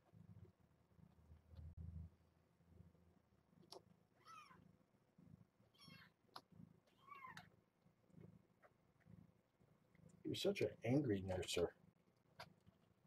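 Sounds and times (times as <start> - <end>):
kitten mewing: 4.2 - 4.6.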